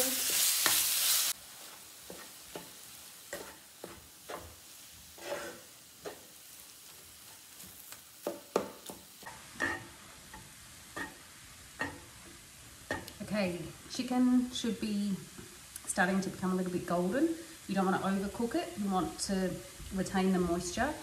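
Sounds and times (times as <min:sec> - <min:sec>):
meat sizzling in a frying pan: 0:00.0 - 0:21.0
spatula scraping and knocking pan: 0:01.7 - 0:11.2, 0:11.8 - 0:13.1.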